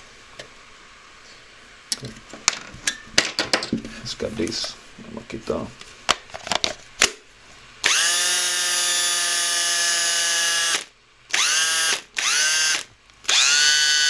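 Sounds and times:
cordless drill motor running: 7.8 - 14.0.

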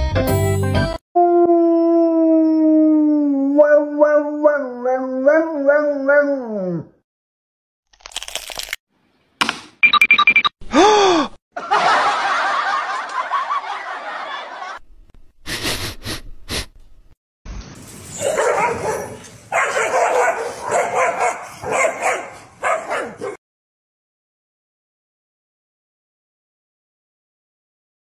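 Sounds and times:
dog yapping barks: 18.1 - 23.4.

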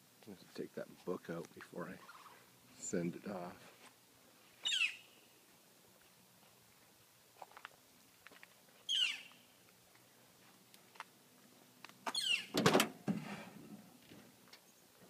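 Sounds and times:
bird chirps sliding down: 4.6 - 5.1.

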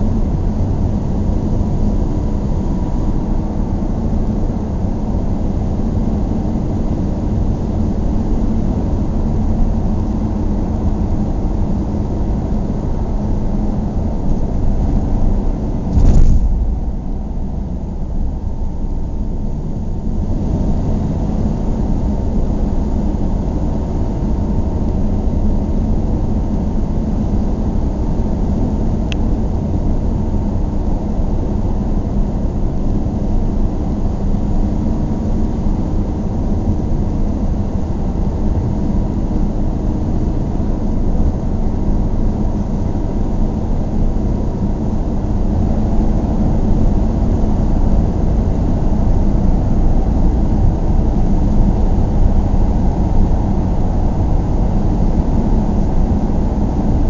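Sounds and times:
car driving on street: 9.4 - 30.3
loud thump: 15.8 - 18.4.

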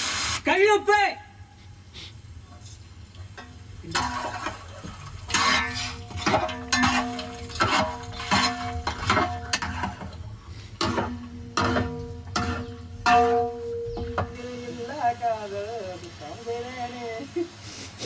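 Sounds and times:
ladle clanking metal pot: 3.2 - 14.6.

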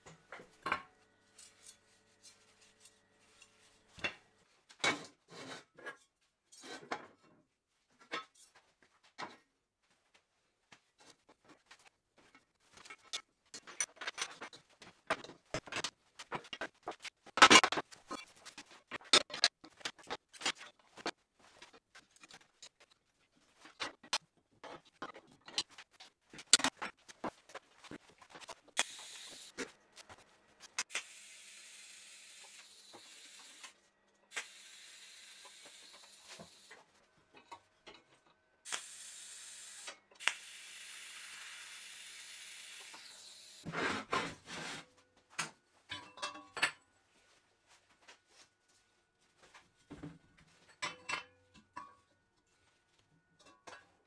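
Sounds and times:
welding arc hissing: 28.8 - 29.5, 34.3 - 36.7, 38.7 - 43.6.

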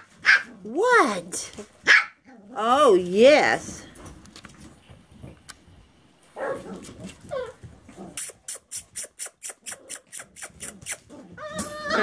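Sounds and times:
short hissy sounds: 8.2 - 11.1
puppy cries: 8.3 - 12.0.

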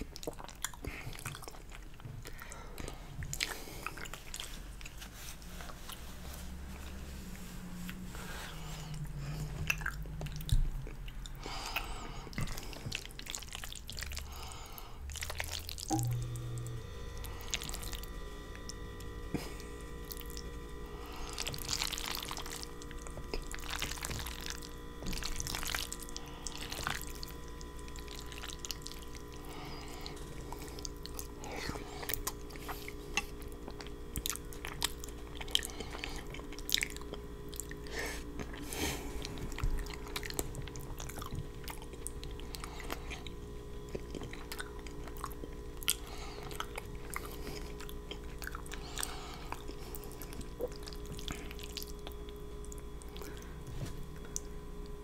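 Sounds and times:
person chewing wetly: 0.0 - 6.8, 7.8 - 55.0.

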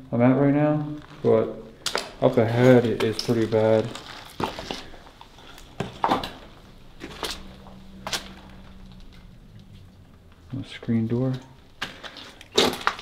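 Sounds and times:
footsteps on muddy floor: 1.0 - 8.4.

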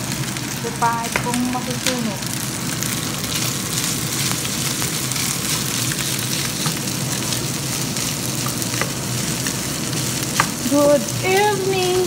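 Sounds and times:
rice sizzling in a hot pan: 0.0 - 12.0
spatula tapping a pan: 8.4 - 9.0, 10.3 - 10.6.

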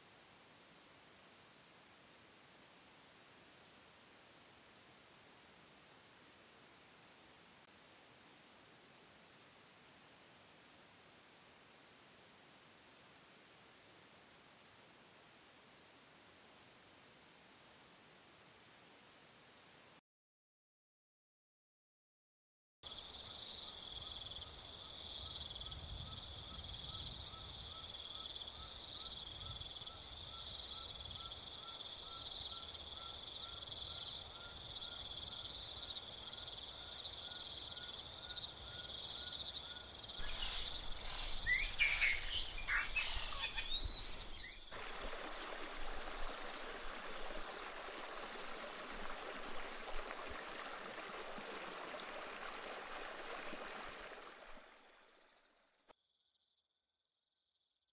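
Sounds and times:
insects trilling: 22.9 - 47.2
bird calls: 39.3 - 44.7
river flowing over stones: 40.2 - 55.2.

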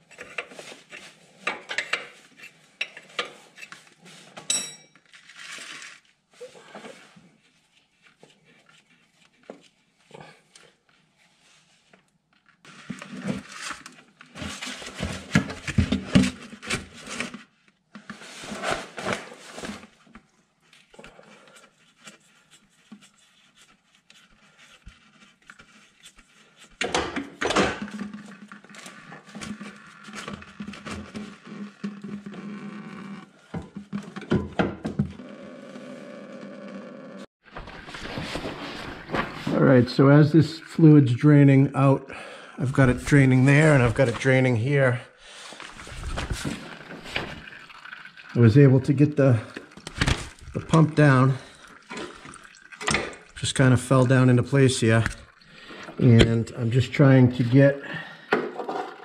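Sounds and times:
wrench clinking on metal: 4.5 - 5.0
fluid draining into plastic jug: 45.9 - 56.0.

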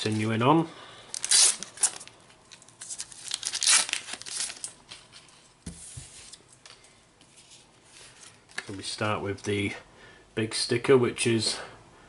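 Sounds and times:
foil packet crinkling and tearing: 1.1 - 5.2.

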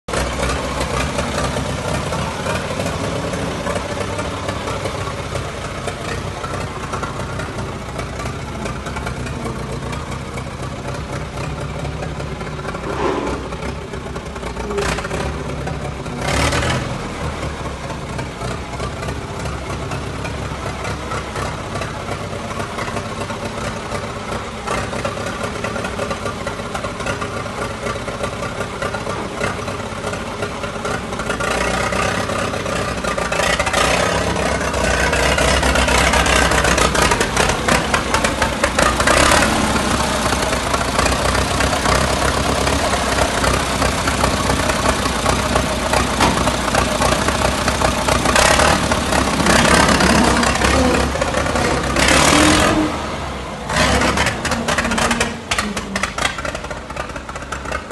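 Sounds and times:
tractor engine idling: 0.1 - 57.9.

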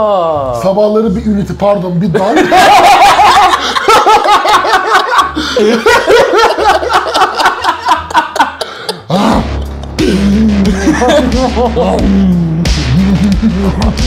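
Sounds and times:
men laughing: 2.2 - 12.3, 13.0 - 14.0.

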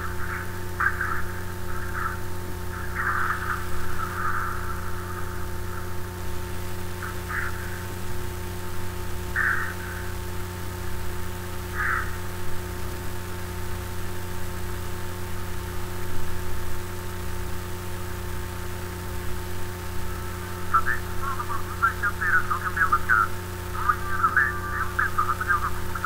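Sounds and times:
faint voice speaking: 0.0 - 6.0, 7.0 - 8.0, 9.4 - 10.1, 11.8 - 12.2, 20.5 - 26.0
low electrical hum with hiss: 0.0 - 26.0.

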